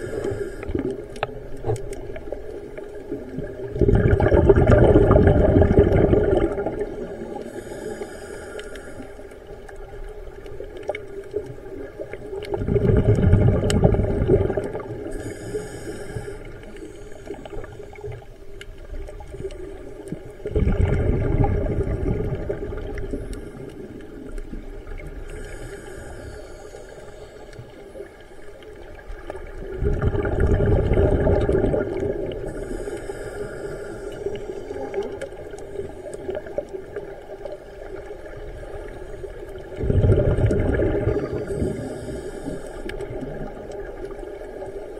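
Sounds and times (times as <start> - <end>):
hiss of inhaled breath: 0.0 - 1.2, 7.3 - 9.6, 15.0 - 18.2, 25.2 - 28.8, 32.4 - 34.9, 41.2 - 43.2
exhaled bubbles rushing: 0.7 - 7.5, 10.3 - 15.2, 18.9 - 25.3, 28.7 - 32.5, 36.2 - 41.9.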